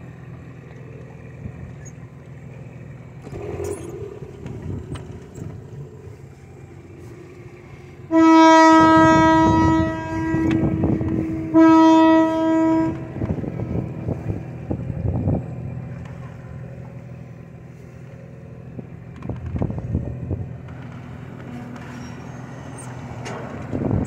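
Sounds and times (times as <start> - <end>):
low engine hum with rumbling: 0.0 - 24.0
locomotive horn: 7.8 - 14.4.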